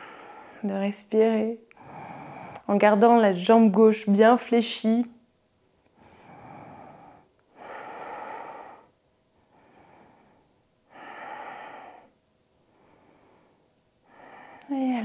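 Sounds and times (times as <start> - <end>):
woman breathing slowly: 0.0 - 0.7, 1.7 - 2.7, 5.9 - 14.8.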